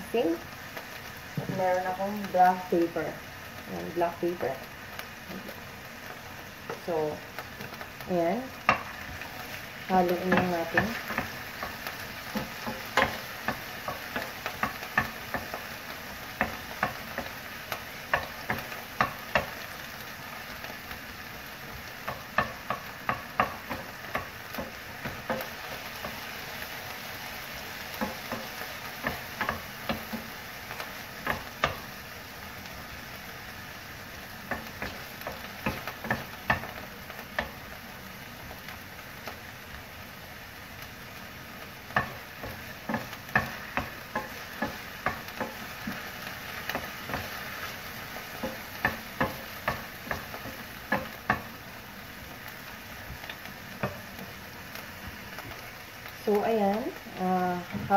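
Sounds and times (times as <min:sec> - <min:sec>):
meat sizzling in a frying pan: 0:00.0 - 0:57.9
wooden spatula scraping a pan: 0:08.6 - 0:20.0.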